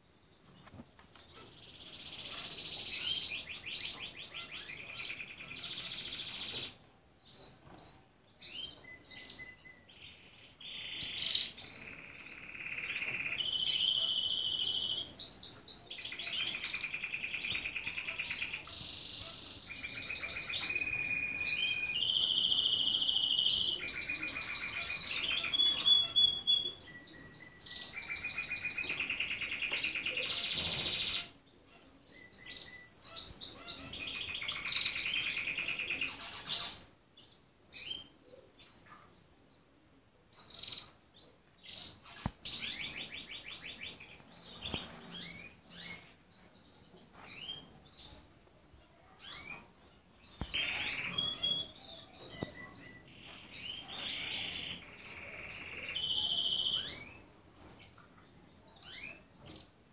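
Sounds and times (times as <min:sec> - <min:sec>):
canary singing trills: 0:00.4 - 0:39.4, 0:40.3 - 0:59.7.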